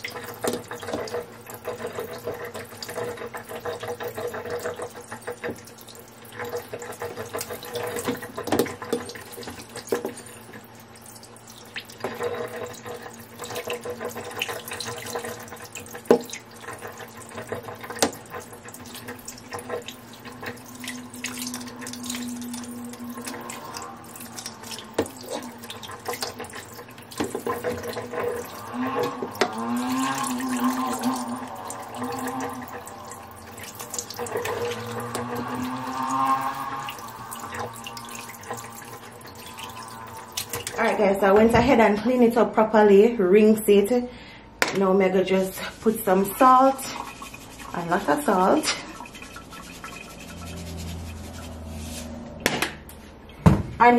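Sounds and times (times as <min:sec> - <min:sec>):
tap running into metal sink: 0:06.4 - 0:10.4, 0:11.8 - 0:22.6.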